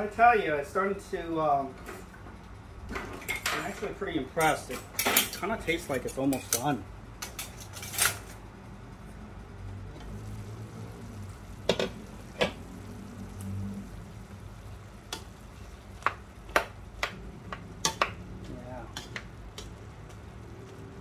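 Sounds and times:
pot simmering: 8.8s - 21.0s.

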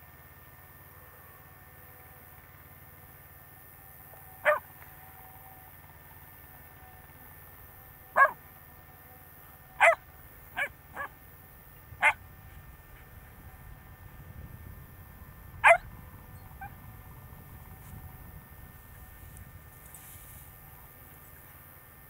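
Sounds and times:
dog barking: 4.4s - 4.6s, 8.2s - 8.4s, 9.8s - 10.0s, 10.6s - 11.2s, 12.0s - 12.2s, 15.6s - 15.9s.

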